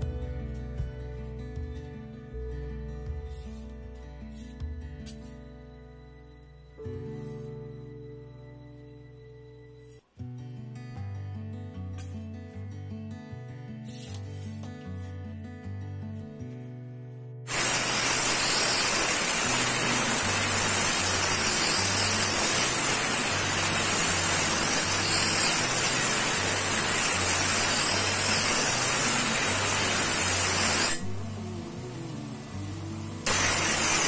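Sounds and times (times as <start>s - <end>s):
background music bass line: 0.0s - 9.7s
grinder wheel grinding metal: 17.5s - 31.2s, 33.2s - 34.0s.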